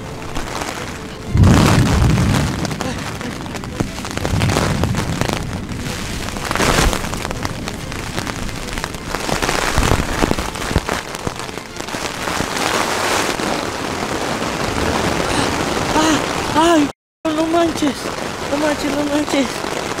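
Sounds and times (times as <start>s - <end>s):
heavy rain on a tent: 0.0s - 20.0s
wind shaking tent walls: 0.0s - 20.0s.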